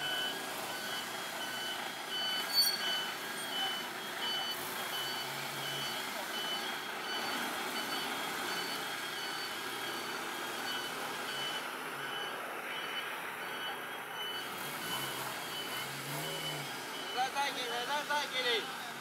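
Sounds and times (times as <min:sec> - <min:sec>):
electronic warning beeps: 0:00.0 - 0:18.2
background noise: 0:00.0 - 0:19.0.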